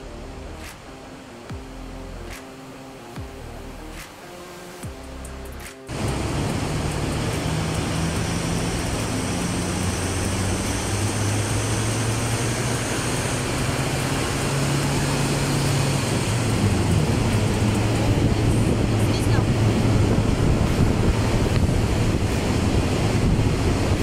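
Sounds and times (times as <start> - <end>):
roller and tyre noise: 5.5 - 24.0
diesel van engine under load: 5.9 - 24.0.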